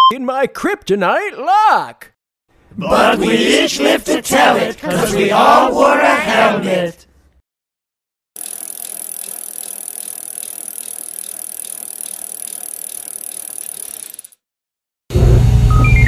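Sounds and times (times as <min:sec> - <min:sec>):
bicycle rattling and ticking: 0:08.4 - 0:14.4.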